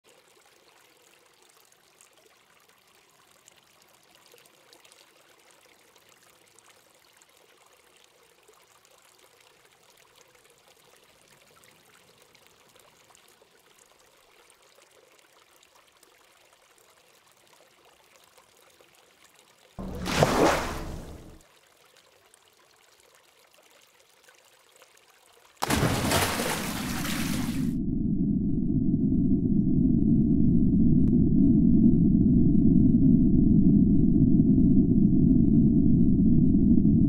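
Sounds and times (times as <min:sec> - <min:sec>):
water flowing and trickling: 0:00.0 - 0:27.8.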